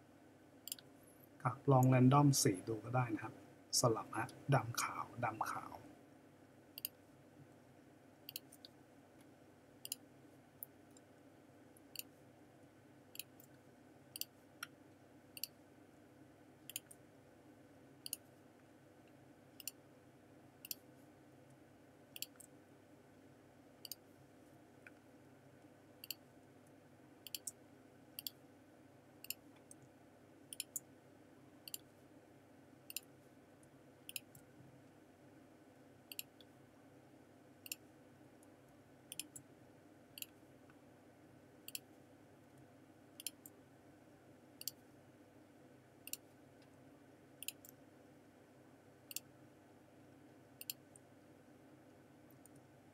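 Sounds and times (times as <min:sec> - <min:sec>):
faint steady hum: 0:00.0 - 0:52.9
computer mouse clicking: 0:00.6 - 0:00.9, 0:06.8 - 0:07.0, 0:08.2 - 0:10.1, 0:11.9 - 0:12.2, 0:13.1 - 0:14.8, 0:15.4 - 0:15.6, 0:16.6 - 0:17.0, 0:18.0 - 0:18.3, 0:19.6 - 0:19.8, 0:20.6 - 0:20.8, 0:22.2 - 0:22.6, 0:23.8 - 0:24.0, 0:26.0 - 0:26.2, 0:27.2 - 0:27.6, 0:28.2 - 0:28.4, 0:29.2 - 0:29.8, 0:30.5 - 0:30.9, 0:31.6 - 0:31.9, 0:32.9 - 0:33.1, 0:34.1 - 0:34.5, 0:36.1 - 0:36.5, 0:37.6 - 0:37.9, 0:39.1 - 0:39.5, 0:40.2 - 0:40.4, 0:41.6 - 0:41.9, 0:43.2 - 0:43.6, 0:44.6 - 0:44.8, 0:46.0 - 0:46.7, 0:47.4 - 0:47.8, 0:49.1 - 0:49.3, 0:50.6 - 0:51.0.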